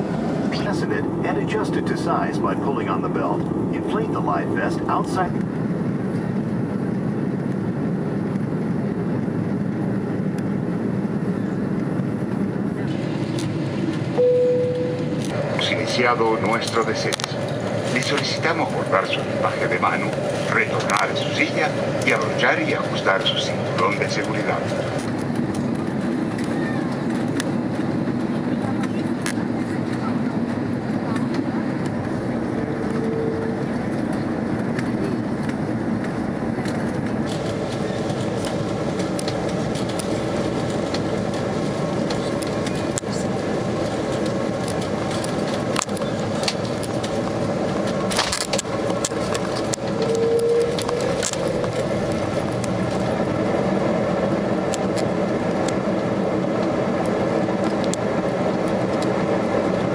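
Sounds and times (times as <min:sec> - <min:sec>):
jet engines droning: 0:00.0 - 0:59.9
short single tones: 0:14.2 - 0:15.2.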